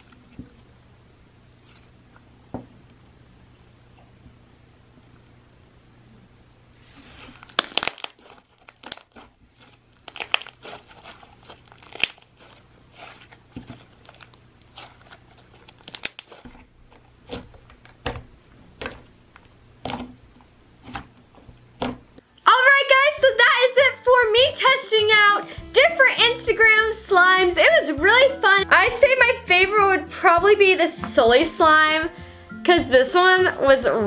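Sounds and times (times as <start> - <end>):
slime squishing and popping: 7.3 - 18.2.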